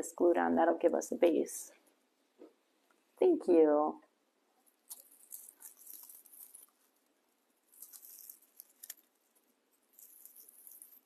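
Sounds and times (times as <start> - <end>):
dry rustling of raffia strands: 4.7 - 11.0.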